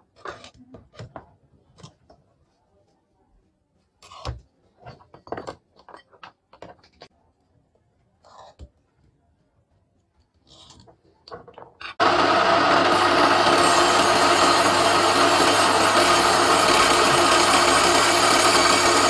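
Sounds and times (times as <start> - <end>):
table saw running: 12.0 - 19.0.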